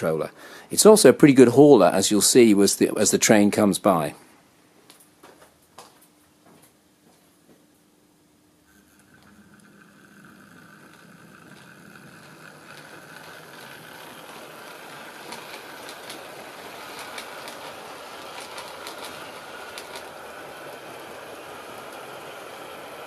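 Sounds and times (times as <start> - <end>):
model train rumble and motor hum: 8.7 - 23.0
wheels clicking over rail joints: 9.1 - 23.0.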